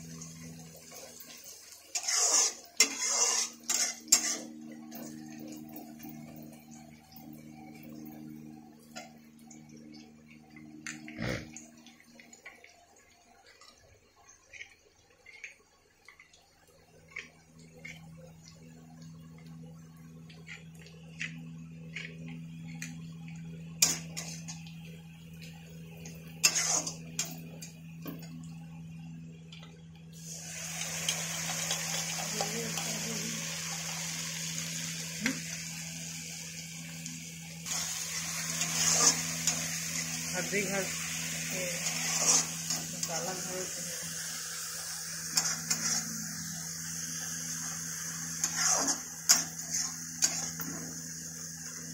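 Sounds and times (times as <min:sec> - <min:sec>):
liquid sizzling in hot oil: 0:00.0 - 0:28.7, 0:30.1 - 0:51.9
metal spatula scraping a pan: 0:01.9 - 0:04.6, 0:26.4 - 0:27.4, 0:38.5 - 0:39.6, 0:41.7 - 0:43.1, 0:45.4 - 0:46.1, 0:48.4 - 0:50.9.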